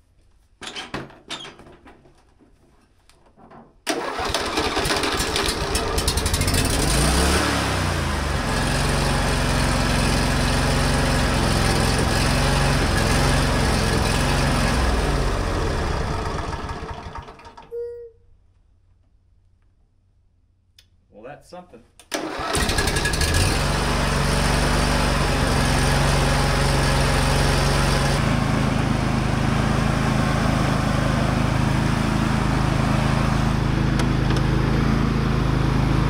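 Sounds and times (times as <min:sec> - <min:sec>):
riding mower engine running: 0:03.9 - 0:17.6, 0:22.2 - 0:36.0.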